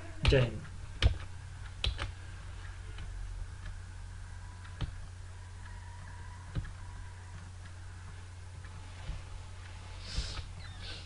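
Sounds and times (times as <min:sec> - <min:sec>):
low electrical hum and hiss: 0:00.0 - 0:11.0.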